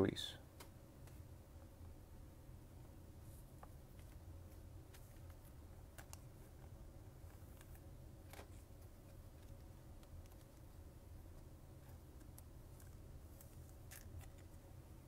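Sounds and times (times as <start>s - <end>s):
low room hum: 0.0s - 15.0s
trading card clicks and rustles: 3.5s - 14.6s.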